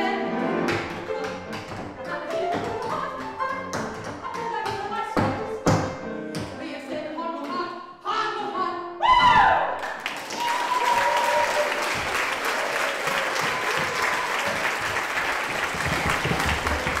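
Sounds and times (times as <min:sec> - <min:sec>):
piano: 0:00.0 - 0:07.9, 0:11.4 - 0:17.0
woman singing: 0:00.0 - 0:09.0
audience applauding: 0:09.8 - 0:17.0.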